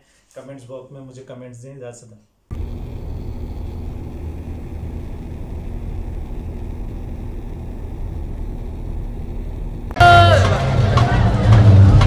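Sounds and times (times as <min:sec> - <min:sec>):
car cabin road rumble: 0:02.5 - 0:10.0.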